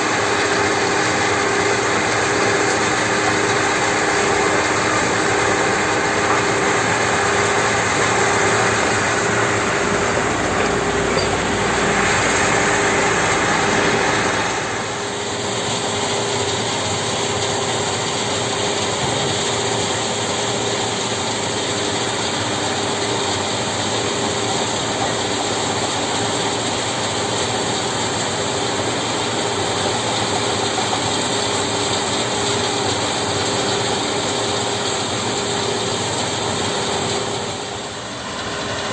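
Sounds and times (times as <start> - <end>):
excavator diesel engine working: 0.0 - 38.9
stone crusher mechanical din: 1.1 - 14.7.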